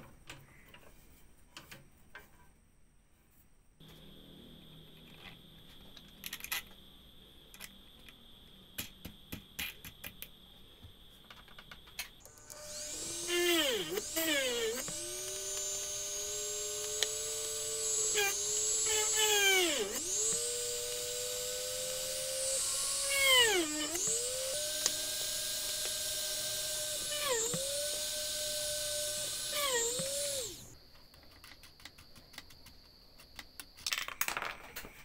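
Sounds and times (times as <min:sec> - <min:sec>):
drill press motor whine: 0:11.5 - 0:30.8.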